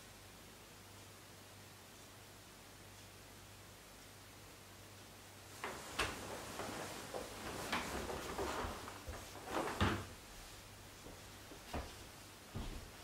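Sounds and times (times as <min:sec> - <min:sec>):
rustling scrapes: 0:05.6 - 0:10.1.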